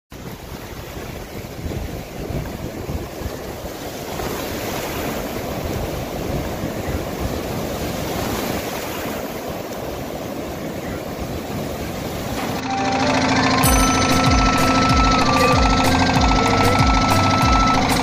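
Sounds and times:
wind on microphone: 0.1s - 12.4s
sea water washing: 0.2s - 17.7s.

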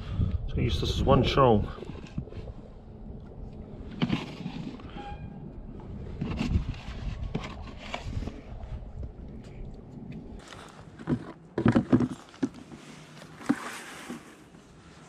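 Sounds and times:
wind on microphone: 0.0s - 10.4s.

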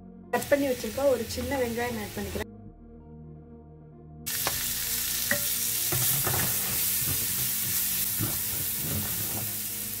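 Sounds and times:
shallot sizzling in a frying pan: 0.4s - 2.4s, 4.3s - 10.0s.

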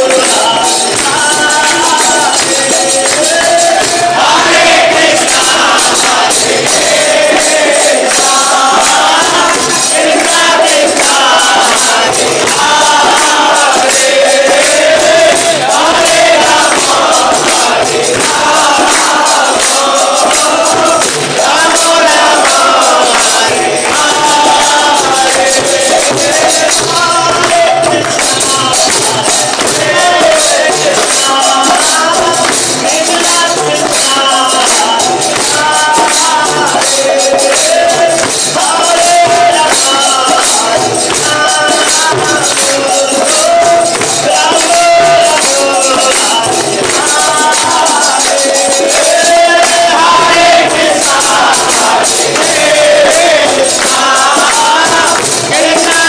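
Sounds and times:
jingling metal percussion: 0.0s - 56.0s
man singing a chant: 0.0s - 56.0s.

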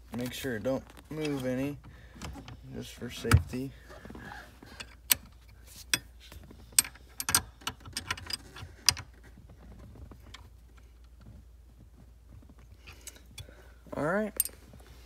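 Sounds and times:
faint handling sounds: 0.0s - 7.6s.

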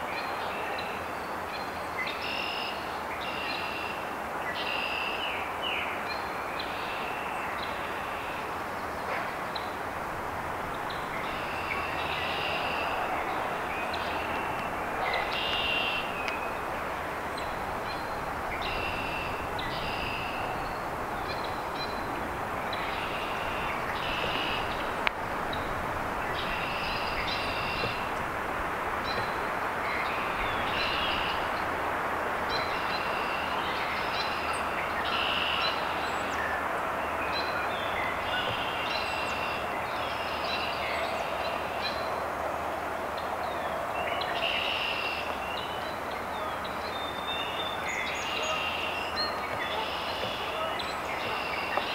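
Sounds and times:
steady rushing noise: 7.8s - 35.0s
small birds singing: 10.5s - 28.3s, 28.9s - 31.8s, 32.4s - 42.1s, 43.2s - 51.9s.

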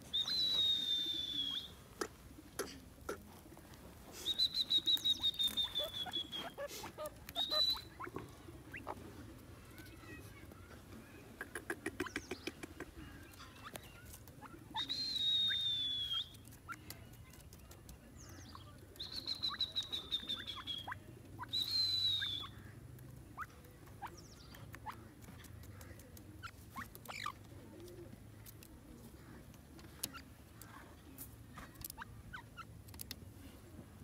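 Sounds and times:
soft downward chirps: 0.1s - 1.8s, 4.2s - 9.0s, 18.5s - 22.6s
bird pecking clicks: 16.2s - 18.0s, 32.8s - 33.2s.

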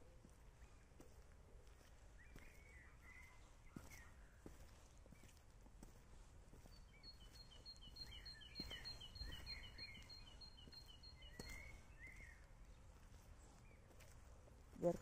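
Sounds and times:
lower slurred bird chirps: 2.2s - 5.4s, 6.6s - 14.2s.

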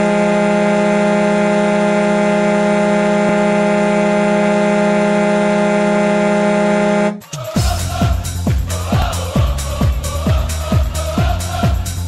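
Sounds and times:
hockey goal horn blast: 0.0s - 7.2s.

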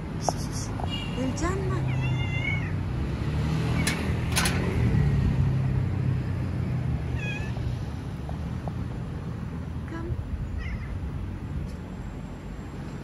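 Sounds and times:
cat meowing: 1.8s - 2.8s, 7.1s - 7.6s, 10.6s - 11.0s.

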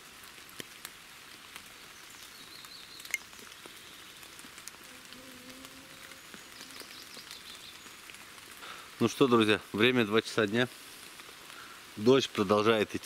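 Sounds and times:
rain falling on leaves: 0.0s - 13.0s
water drips: 0.2s - 9.3s.

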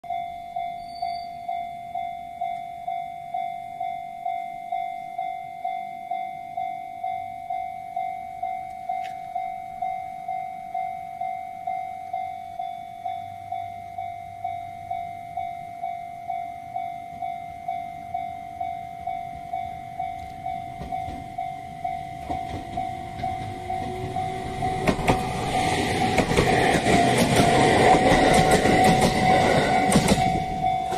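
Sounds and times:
level crossing bell dinging: 0.1s - 30.9s
electric train motor whine: 22.2s - 30.9s
wheels clacking over rail joints: 22.2s - 30.9s.

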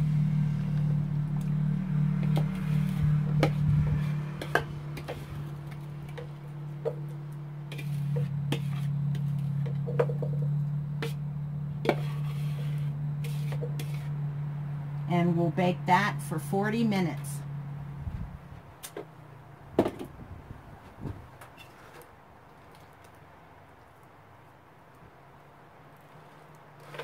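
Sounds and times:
steady low hum: 0.0s - 21.4s
utensil scraping mixing bowl: 2.1s - 11.2s, 11.8s - 14.3s, 26.0s - 27.0s.

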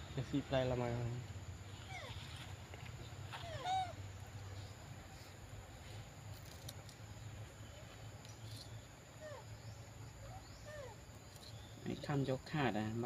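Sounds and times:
faint low hum: 0.0s - 13.0s
baby monkey squeaking: 1.8s - 2.4s, 3.4s - 4.0s.

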